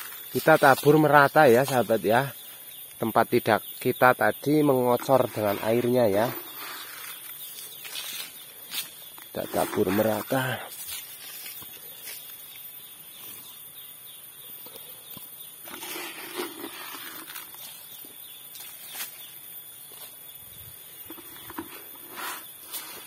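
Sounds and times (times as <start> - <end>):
rustling in leaf litter: 0.0 - 2.1, 5.0 - 12.8, 21.1 - 23.0.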